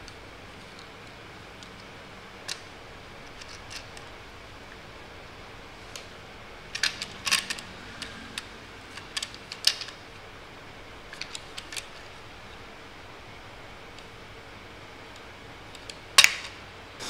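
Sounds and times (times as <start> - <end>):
small hard parts clicking: 0.0 - 4.1, 6.7 - 10.1, 11.1 - 12.2.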